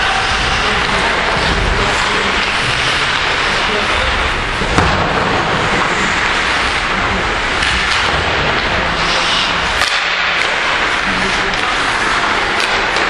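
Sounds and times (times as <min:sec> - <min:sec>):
skates scraping on ice: 0:00.0 - 0:13.0
stick hitting puck: 0:04.6 - 0:06.9, 0:07.5 - 0:13.0.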